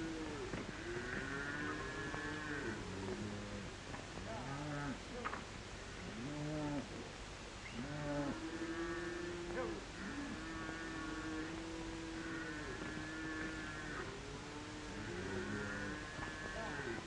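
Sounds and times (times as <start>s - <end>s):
cattle mooing: 0.0s - 3.6s, 7.8s - 17.0s.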